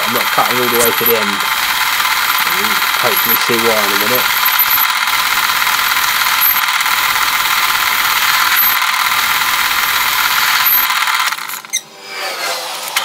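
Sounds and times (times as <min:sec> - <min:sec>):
lathe tool cutting with hiss: 0:00.0 - 0:13.0
short high squeak: 0:11.6 - 0:12.8.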